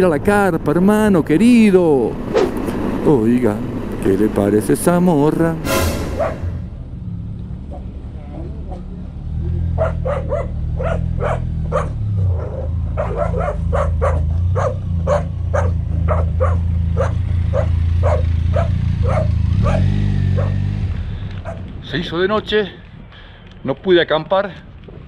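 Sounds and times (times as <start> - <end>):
motorcycle engine running: 0.0 - 5.6, 6.7 - 22.0
dog barking: 6.2 - 6.6, 9.7 - 20.7, 21.4 - 21.6.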